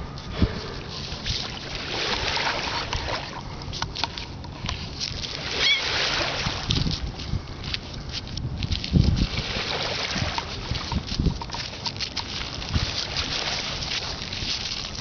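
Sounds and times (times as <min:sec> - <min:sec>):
wind on microphone: 0:00.0 - 0:15.0
small waves lapping: 0:00.4 - 0:07.8, 0:08.7 - 0:15.0
footsteps on pebbles: 0:06.7 - 0:15.0.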